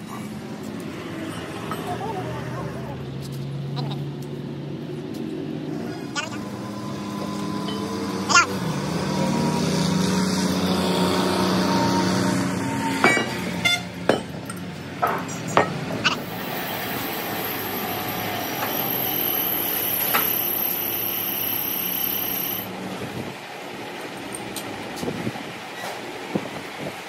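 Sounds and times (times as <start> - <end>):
machine humming: 5.8 - 13.1, 16.0 - 22.7
metal knocks and clanks: 13.0 - 16.0
faint high whine: 16.2 - 22.7.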